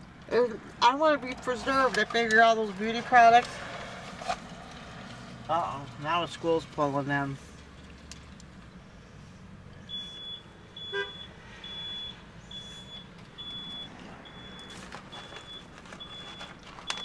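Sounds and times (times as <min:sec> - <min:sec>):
car warning chime beeping: 0:09.9 - 0:17.0.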